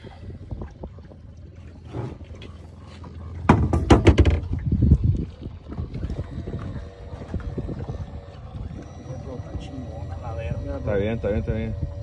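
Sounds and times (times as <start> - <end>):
water noise: 0.0 - 12.0
wind: 0.0 - 12.0
loud knocks and clatter: 3.5 - 4.5.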